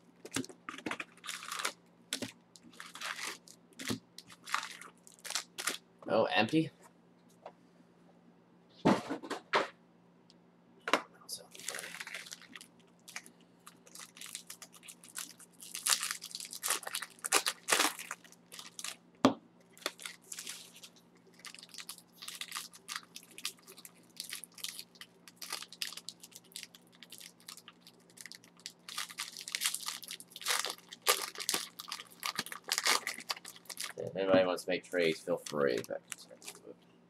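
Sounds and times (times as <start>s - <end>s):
foil wrappers crinkling: 0.3s - 5.8s, 11.5s - 19.0s, 19.7s - 34.0s, 35.3s - 36.6s.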